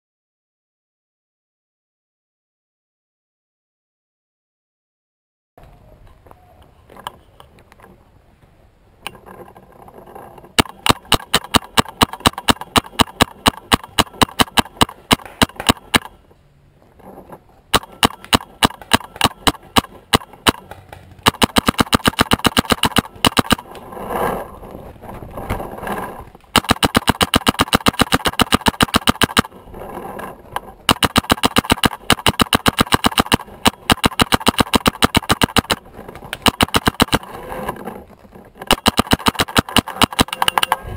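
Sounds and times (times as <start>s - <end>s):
paintball marker firing: 10.6s - 16.2s, 17.7s - 23.7s, 26.5s - 29.6s, 30.9s - 37.3s, 38.7s - 40.8s.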